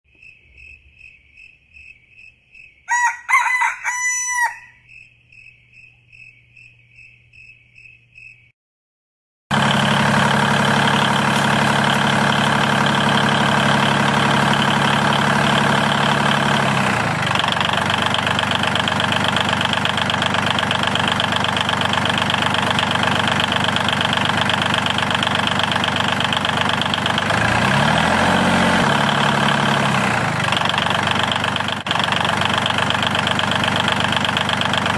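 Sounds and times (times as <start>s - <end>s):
rooster crowing: 2.9s - 4.9s
loud engine running: 9.5s - 34.9s.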